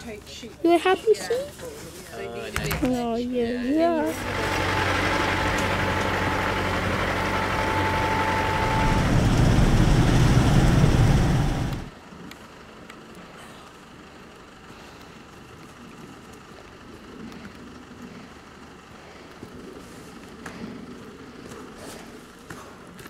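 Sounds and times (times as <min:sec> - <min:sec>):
diesel engine: 0:03.6 - 0:22.8
road noise: 0:03.6 - 0:23.0
thin high whine: 0:04.1 - 0:11.9.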